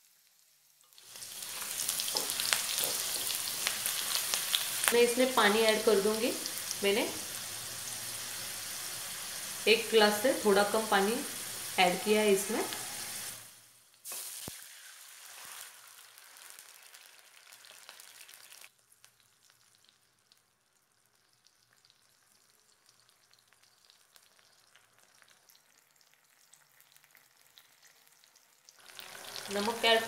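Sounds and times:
hot oil sizzling and crackling: 0.0s - 30.0s.

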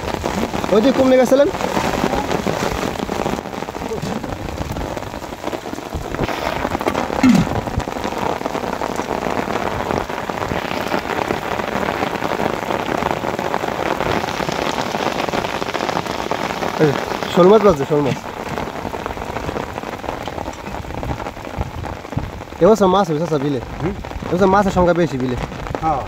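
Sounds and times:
heavy rain on water: 0.0s - 26.0s.

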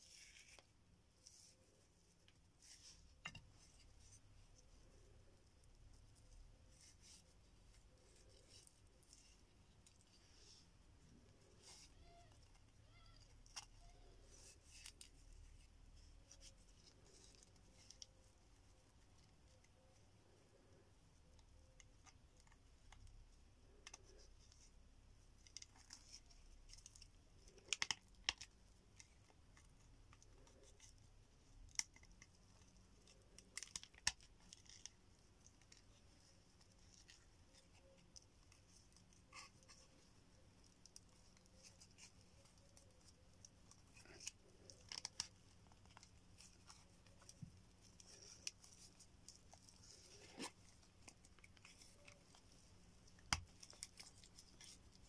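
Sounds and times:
cord rustling and scraping: 0.0s - 55.0s
cord clicking against bone: 25.4s - 55.0s.

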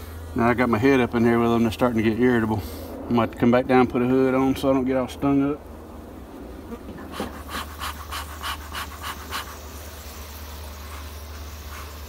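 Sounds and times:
steady low hum: 0.0s - 12.0s
bellows puffing: 6.6s - 12.0s.

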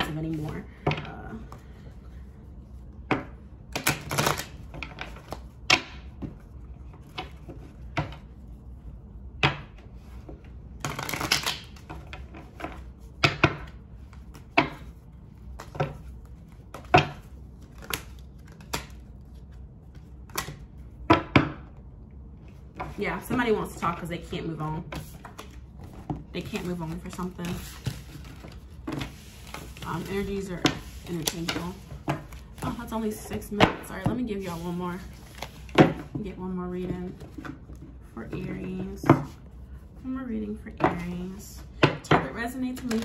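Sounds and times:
cards being shuffled: 10.0s - 20.9s, 24.9s - 36.1s, 42.8s - 43.0s.

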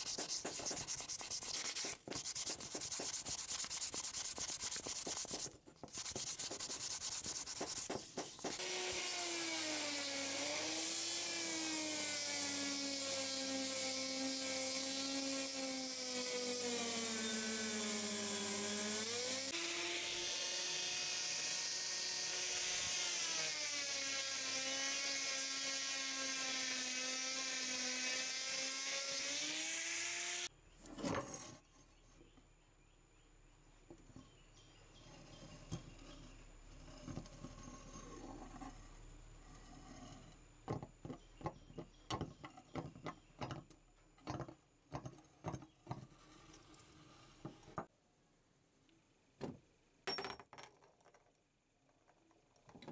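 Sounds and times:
sandpaper rubbing on wood: 0.0s - 9.1s
electric grinder on metal: 8.5s - 30.5s.

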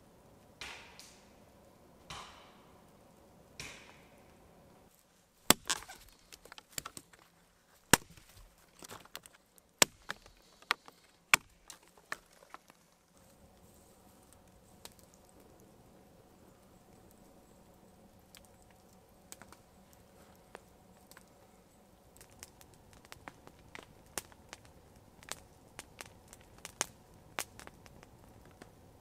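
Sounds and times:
axe chopping wood: 2.1s - 2.5s, 3.6s - 4.0s, 5.5s - 7.1s, 7.9s - 12.3s.

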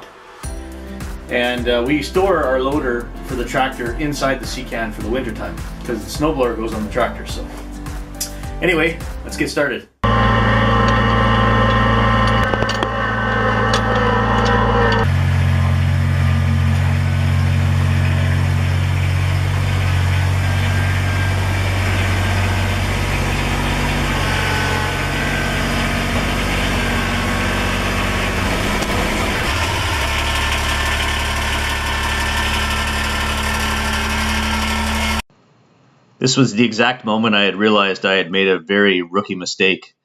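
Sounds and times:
tractor diesel engine running: 10.0s - 35.2s.

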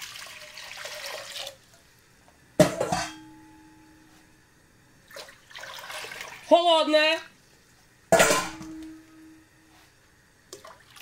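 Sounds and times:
water pouring into a pot: 0.0s - 1.7s, 5.1s - 6.5s, 10.6s - 11.0s
sharp metallic clank: 8.1s - 9.4s.

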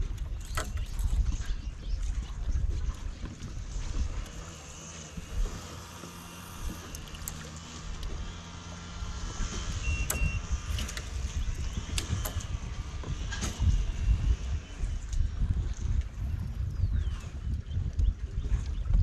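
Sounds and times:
string trimmer running: 3.5s - 15.3s.

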